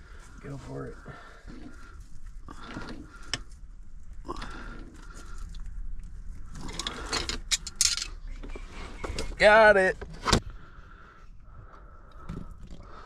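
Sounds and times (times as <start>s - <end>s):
scraping and rustling: 0.0s - 9.4s.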